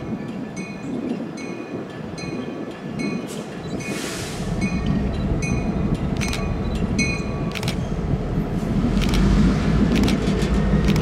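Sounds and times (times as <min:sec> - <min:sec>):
train bell dinging: 0:00.0 - 0:04.0, 0:04.6 - 0:07.6
diesel locomotive rumble: 0:00.0 - 0:11.0.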